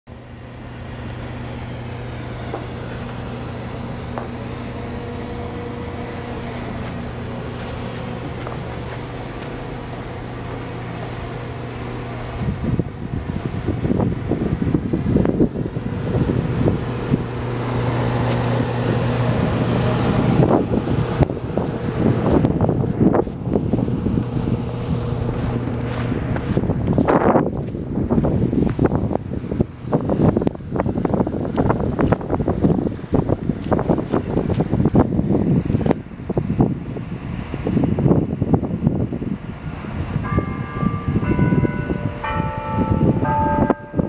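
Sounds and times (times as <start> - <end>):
steady mechanical hum: 0.1 - 44.0
wind buffeting microphone: 0.7 - 44.0.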